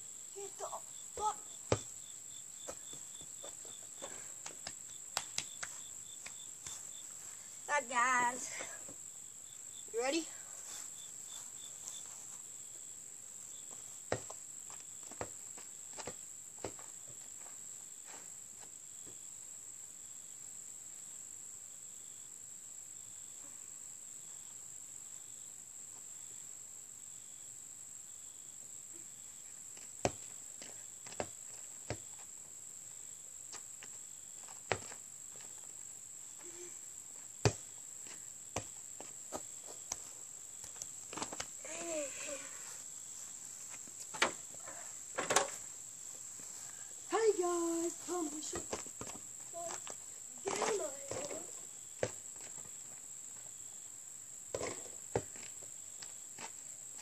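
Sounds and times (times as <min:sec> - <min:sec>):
insect chorus: 0:00.0 - 0:57.0
basketball bouncing on dirt: 0:01.2 - 0:02.0, 0:02.6 - 0:06.8, 0:14.1 - 0:17.5, 0:29.8 - 0:32.2, 0:33.5 - 0:35.5, 0:37.4 - 0:41.6, 0:48.4 - 0:52.8, 0:54.5 - 0:55.6.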